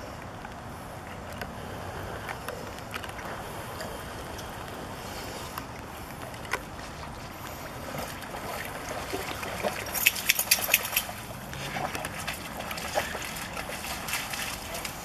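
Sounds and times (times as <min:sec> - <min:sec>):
water lapping: 0:00.0 - 0:15.0
dog splashing out of water: 0:07.6 - 0:15.0.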